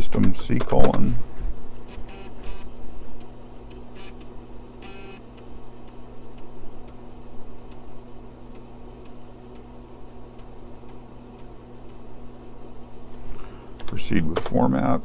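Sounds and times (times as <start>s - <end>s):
computer low hum: 0.0s - 15.0s
faint regular ticks: 7.7s - 7.9s, 8.5s - 9.7s.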